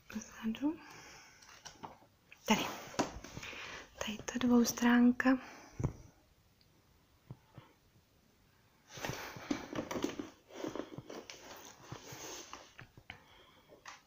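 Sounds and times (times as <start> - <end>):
paper pages rustling: 9.0 - 12.9.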